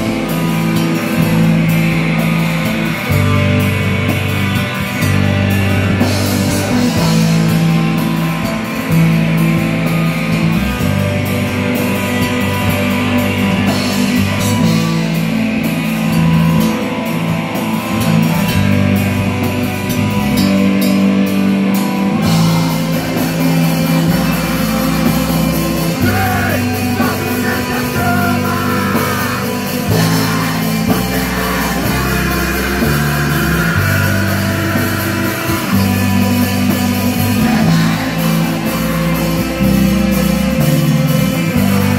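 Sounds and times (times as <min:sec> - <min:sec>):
bass guitar: 0:00.0 - 0:41.9
drum kit: 0:00.0 - 0:41.9
electric guitars: 0:00.0 - 0:41.9
keyboard: 0:00.0 - 0:41.9
lead vocalist singing: 0:22.3 - 0:39.6.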